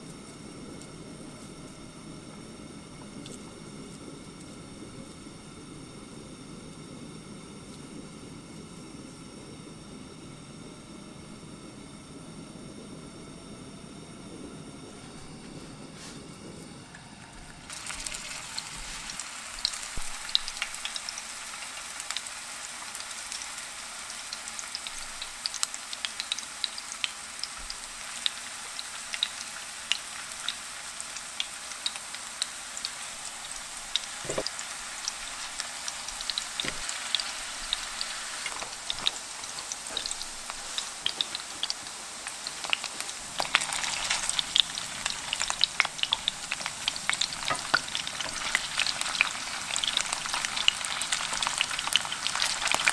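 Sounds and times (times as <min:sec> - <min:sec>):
meatballs sizzling in oil: 0:17.4 - 0:52.9.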